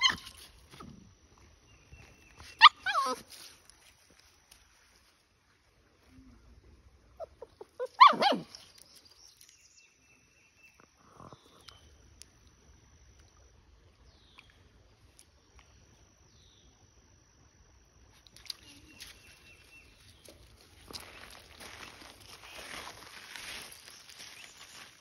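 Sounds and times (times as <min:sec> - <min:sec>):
puppy whimpering: 0:02.6 - 0:03.3, 0:07.2 - 0:08.5.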